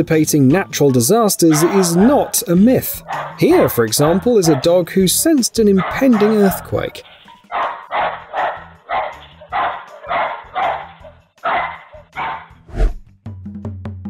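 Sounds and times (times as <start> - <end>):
small dog barking: 1.5 - 2.4, 3.0 - 4.7, 5.8 - 12.5.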